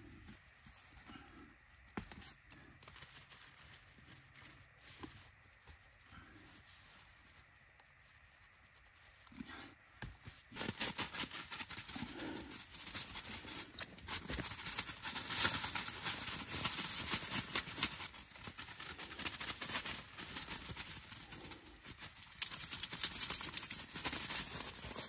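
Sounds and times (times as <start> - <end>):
tent fabric rustling: 10.3 - 22.0.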